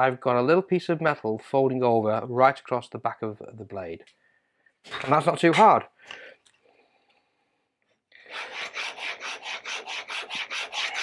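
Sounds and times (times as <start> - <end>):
chisel rasping on sharpening plate: 8.3 - 11.0.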